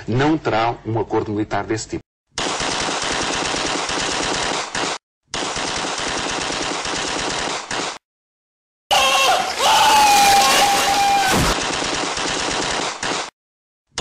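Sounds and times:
machine-gun fire: 0:02.4 - 0:08.0, 0:11.3 - 0:13.3.

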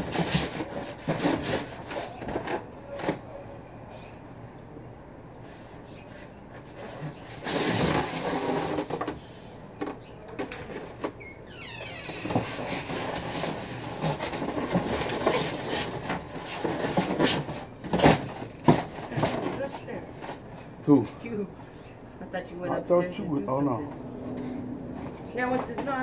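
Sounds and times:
foam and cardboard rubbing: 0:00.0 - 0:03.2, 0:05.4 - 0:09.2, 0:12.1 - 0:20.4.

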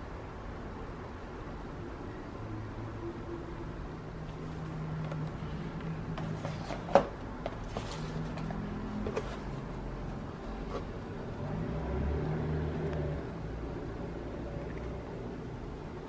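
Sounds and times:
packaging rustles: 0:06.2 - 0:09.6.

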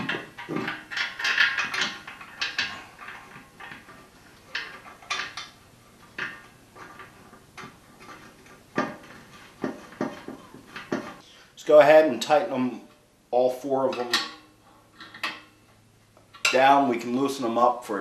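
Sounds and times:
metallic clinks and rattles: 0:00.0 - 0:11.2.

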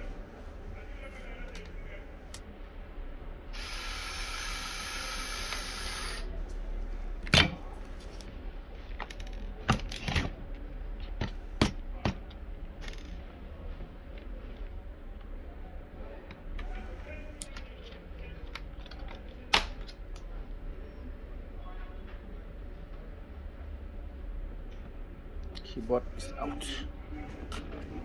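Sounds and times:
electric screwdriver whining: 0:03.6 - 0:06.2.

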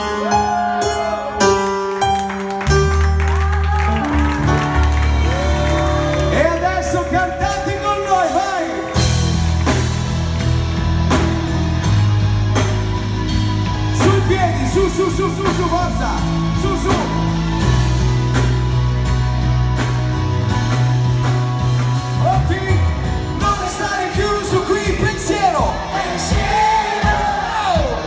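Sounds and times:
live band playing: 0:00.0 - 0:28.0
electric bass long low notes: 0:02.6 - 0:28.0.

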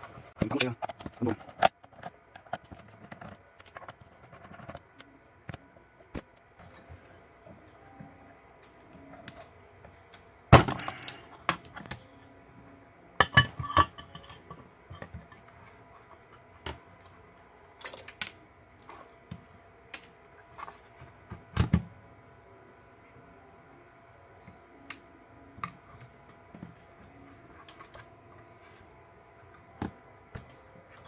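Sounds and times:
metal clinks and knocks: 0:10.6 - 0:11.6, 0:17.8 - 0:18.2.

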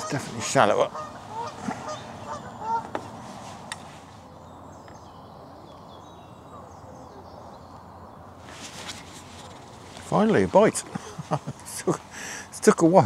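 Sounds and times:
goose honking: 0:00.0 - 0:03.0
low outdoor hiss: 0:00.0 - 0:13.0
small birds chirping: 0:00.0 - 0:13.0.

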